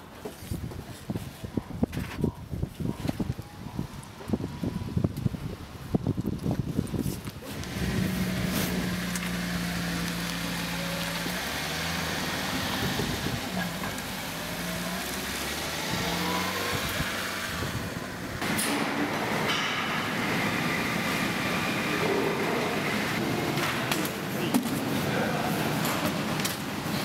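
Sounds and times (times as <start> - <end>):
small truck engine humming: 7.4 - 24.4.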